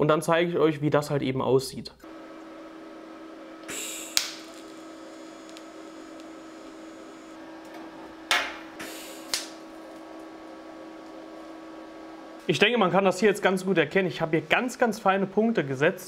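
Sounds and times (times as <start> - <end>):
steady hum: 2.0 - 16.0
welder arc hissing: 3.6 - 9.8
sharp click: 4.1 - 4.4.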